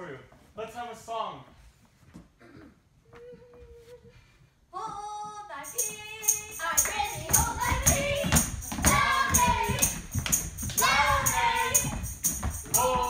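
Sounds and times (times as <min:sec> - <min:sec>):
music: 0:05.6 - 0:13.0
tambourine jingling: 0:05.6 - 0:13.0.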